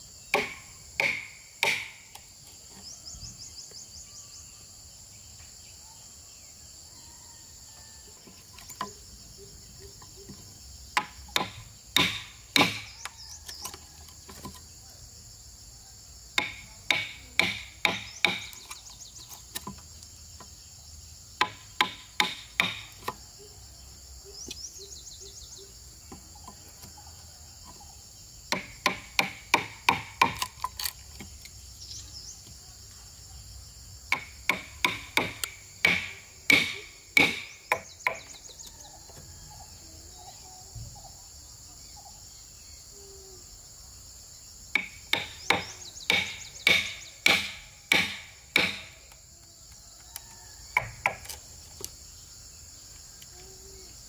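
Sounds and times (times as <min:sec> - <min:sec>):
insect chorus: 0:00.0 - 0:54.0
hammer blows on wood: 0:00.4 - 0:02.1, 0:34.1 - 0:38.3, 0:44.7 - 0:49.0.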